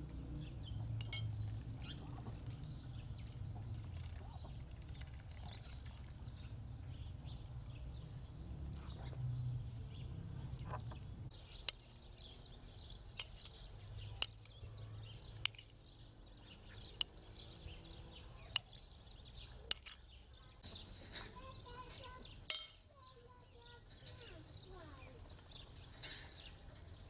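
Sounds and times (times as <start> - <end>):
low outdoor rumble: 0.0 - 15.7
birds chirping: 0.0 - 27.0
metal spoon clinking on plate: 1.0 - 1.3, 14.2 - 14.5, 15.4 - 15.7, 19.7 - 20.0, 22.5 - 22.8.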